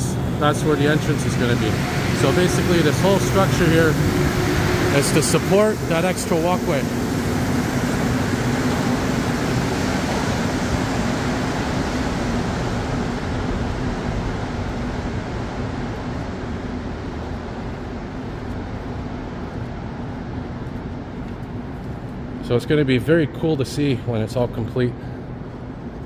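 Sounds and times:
steady station hum: 0.0s - 26.0s
train rumble pulling out: 0.0s - 26.0s.

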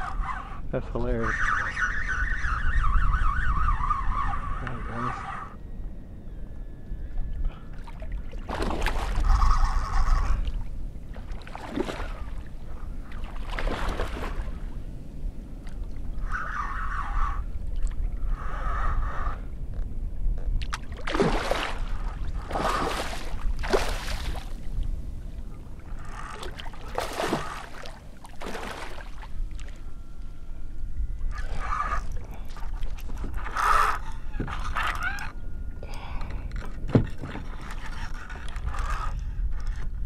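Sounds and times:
kayak paddle splashing: 26.4s - 29.7s.

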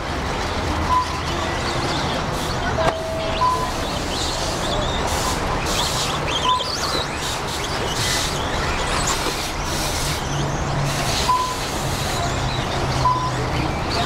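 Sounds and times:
short electronic beep: 0.9s - 1.2s.

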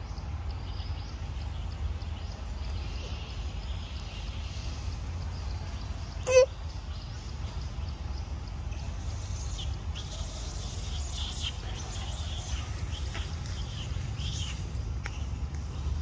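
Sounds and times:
steady low rumble: 0.0s - 16.0s
high chirping animal calls: 6.0s - 6.8s.

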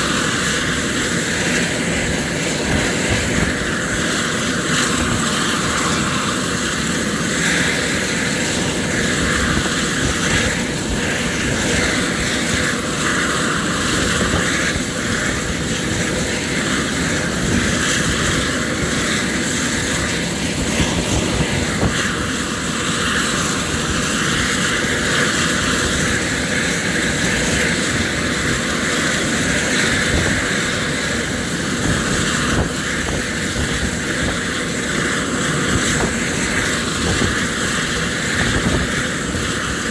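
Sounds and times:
helicopter running: 0.0s - 39.9s.

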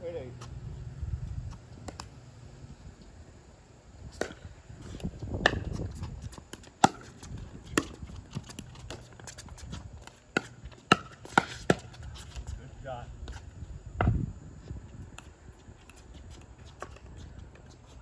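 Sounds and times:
ball bouncing on court: 6.5s - 9.1s, 10.0s - 11.9s.

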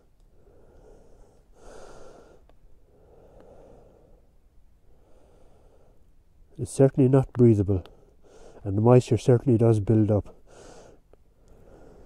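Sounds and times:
man breathing softly: 0.3s - 6.2s, 7.9s - 8.7s, 10.4s - 12.0s
faint clicks: 2.4s - 2.6s.

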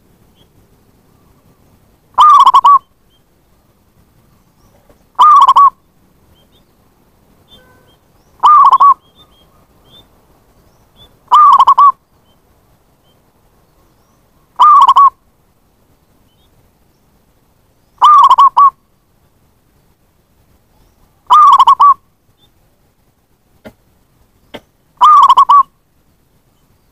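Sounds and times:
dove cooing: 2.2s - 2.9s, 4.7s - 5.8s, 7.5s - 9.6s, 11.3s - 12.0s, 14.6s - 15.2s, 18.0s - 18.8s, 21.3s - 22.0s, 24.5s - 25.7s.

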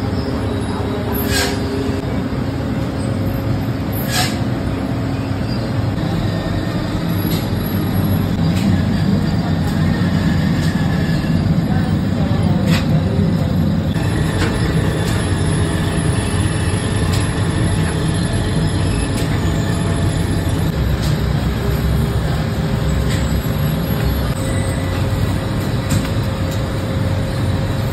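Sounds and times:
bread production machinery running: 0.0s - 27.9s.

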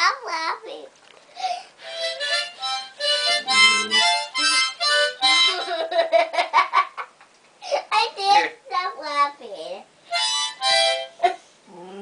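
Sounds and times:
harmonica chords: 1.4s - 6.1s, 10.0s - 11.4s.

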